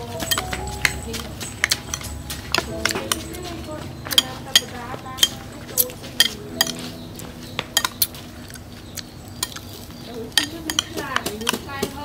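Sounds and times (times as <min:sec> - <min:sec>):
spoon clinking on ceramic bowl: 0:00.0 - 0:03.4, 0:04.1 - 0:07.0, 0:10.3 - 0:11.6.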